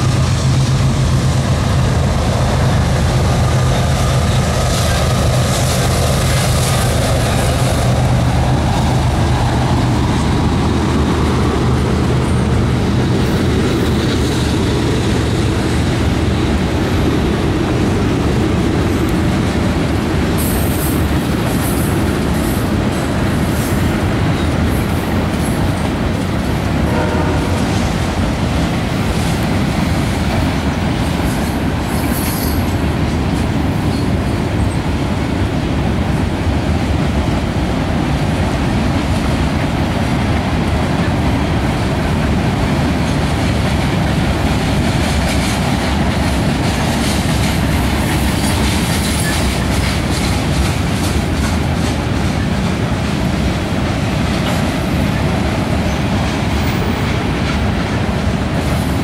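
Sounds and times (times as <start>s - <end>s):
clickety-clack over rail joints: 0.0s - 59.0s
train wheels rumbling on rail: 0.0s - 59.0s.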